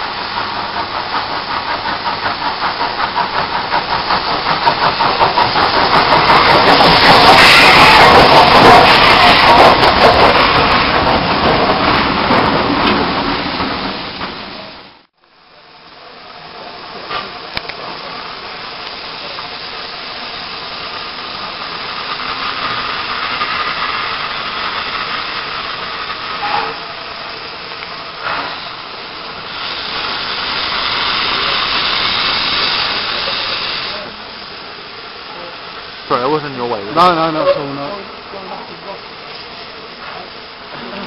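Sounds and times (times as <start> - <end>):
steam hissing from locomotive: 0.0 - 14.9, 15.5 - 41.0
loud rushing noise: 5.1 - 15.0.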